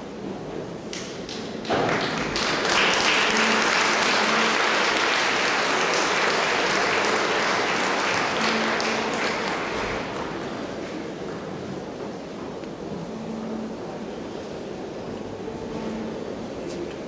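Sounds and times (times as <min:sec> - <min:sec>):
audience applauding: 0:01.3 - 0:10.6.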